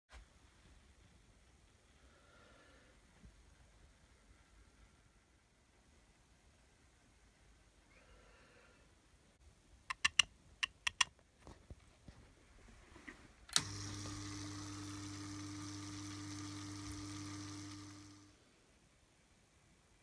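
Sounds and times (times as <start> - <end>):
sharp clicks: 9.9 - 11.1
water pump humming: 13.5 - 18.4.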